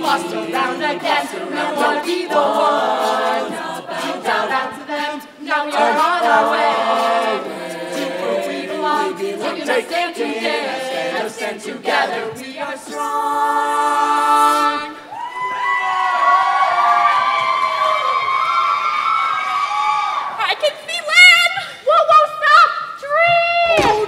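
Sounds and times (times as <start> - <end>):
group singing in harmony: 0.0 - 15.2.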